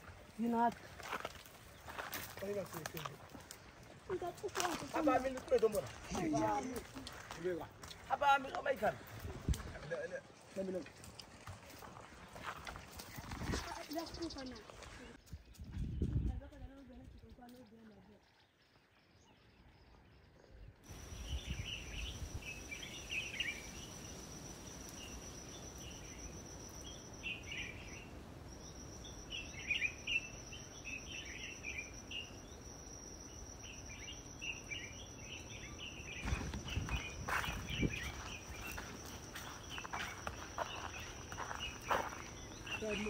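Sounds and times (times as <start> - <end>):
birds chirping: 0.3 - 43.0
insect trilling: 20.9 - 43.0.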